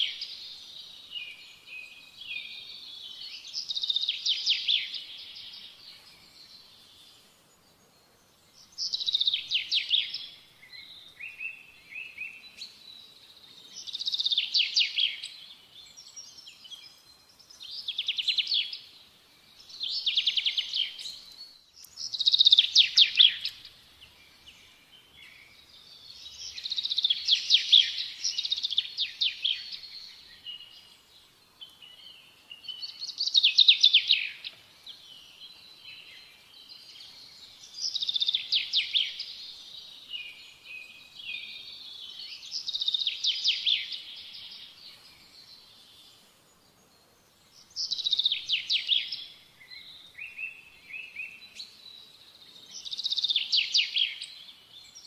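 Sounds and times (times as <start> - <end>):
songbird trilling: 19.8 - 23.8.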